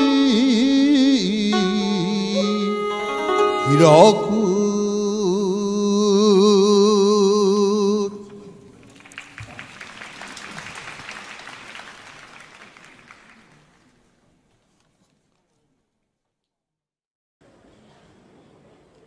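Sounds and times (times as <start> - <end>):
man chanting with vibrato: 0.0 - 8.6
audience applause: 8.7 - 14.2.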